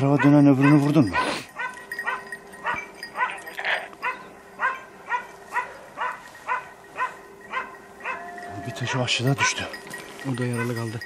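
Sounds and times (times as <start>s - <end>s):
dog barking: 0.1s - 8.4s.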